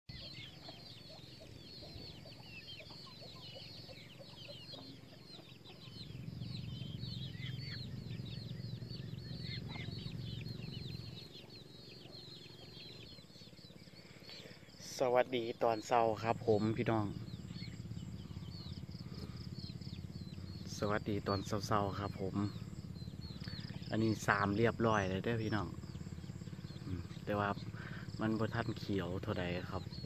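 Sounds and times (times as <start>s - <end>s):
chickens clucking: 0.1s - 30.0s
chicks chirping and peeping: 0.1s - 30.0s
low rumble: 16.2s - 24.0s.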